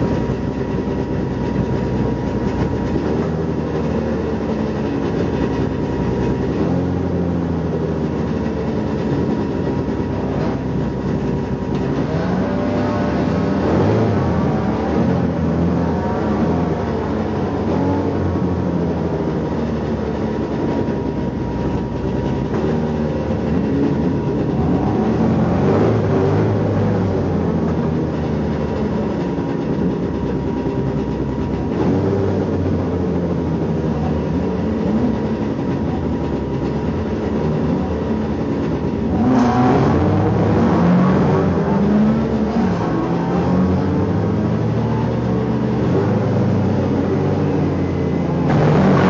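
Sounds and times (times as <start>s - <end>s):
race car engine revving: 0.0s - 49.0s
loud sharp noise: 45.4s - 49.0s.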